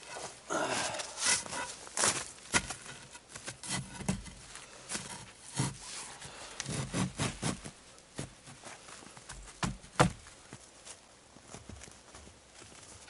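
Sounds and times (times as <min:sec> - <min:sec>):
boots crunching in snow: 0:00.1 - 0:03.6.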